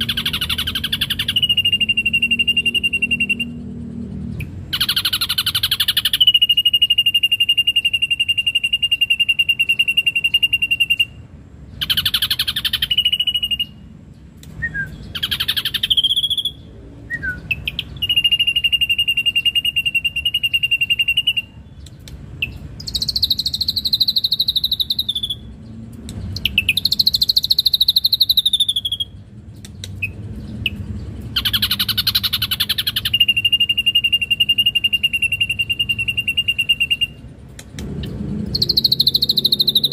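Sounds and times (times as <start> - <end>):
harsh bird call bursts: 0.0 - 3.8, 4.6 - 13.9, 14.7 - 21.6, 30.0 - 37.2
bird singing fast trills: 0.0 - 39.9.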